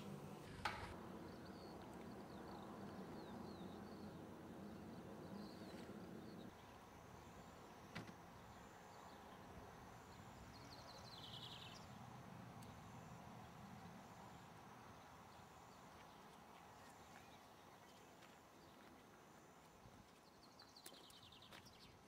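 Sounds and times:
small birds chirping: 1.1 - 12.0, 20.0 - 22.0.

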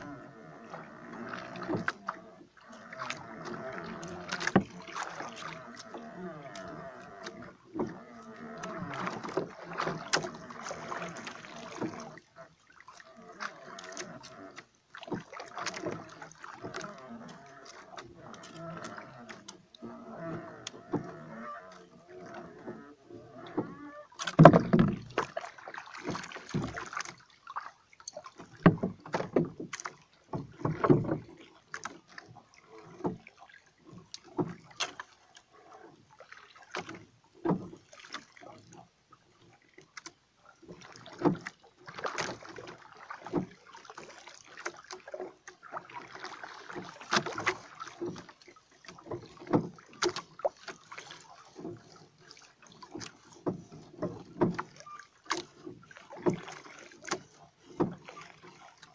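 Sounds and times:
knocks and thumps in wooden boat: 0.0 - 58.9
water sloshing against boat hull: 0.0 - 58.9.

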